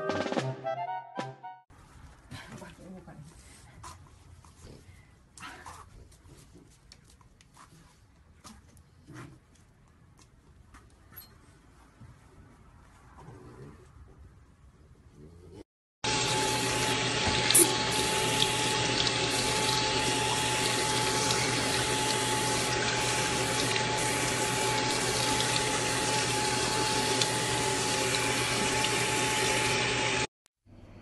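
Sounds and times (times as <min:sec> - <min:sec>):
faucet running into sink: 0:16.1 - 0:30.3
water splashing: 0:16.1 - 0:30.3.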